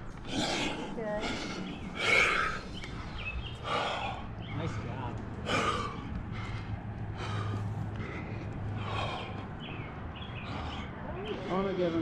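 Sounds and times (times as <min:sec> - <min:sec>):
heavy breathing: 0:00.0 - 0:12.0.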